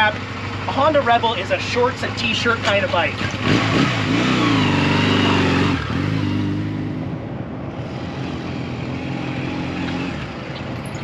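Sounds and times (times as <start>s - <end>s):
motorcycle engine running: 0.0s - 7.2s.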